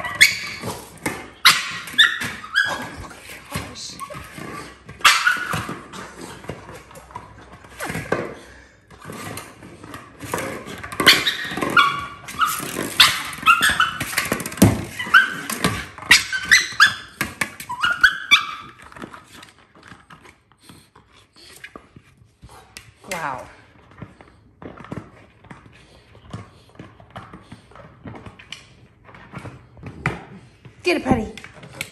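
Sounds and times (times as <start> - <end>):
puppy whining and barking: 0.0 - 6.0, 11.0 - 14.3, 14.9 - 18.9.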